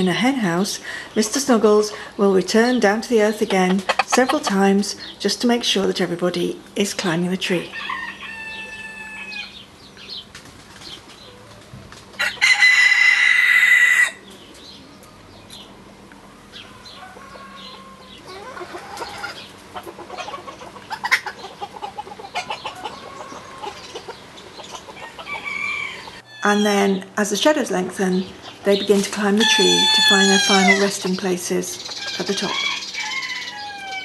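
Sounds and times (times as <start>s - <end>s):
hens clucking: 1.4s - 5.2s, 7.8s - 26.9s, 27.9s - 34.0s
rooster crowing: 7.8s - 9.6s, 12.2s - 14.3s, 16.5s - 19.5s, 25.0s - 26.6s, 29.4s - 30.9s, 32.4s - 34.0s.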